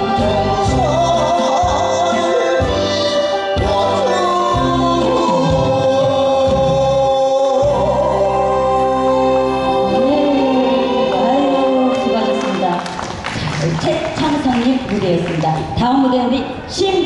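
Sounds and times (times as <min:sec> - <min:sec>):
man singing: 0:00.0 - 0:12.1
instrumental backing music: 0:00.0 - 0:13.5.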